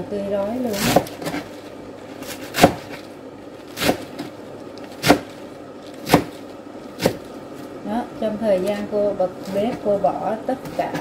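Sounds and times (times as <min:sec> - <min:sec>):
knife chopping on plastic board: 0:00.7 - 0:01.5, 0:02.2 - 0:03.0, 0:03.7 - 0:04.3, 0:04.9 - 0:05.4, 0:06.0 - 0:07.3.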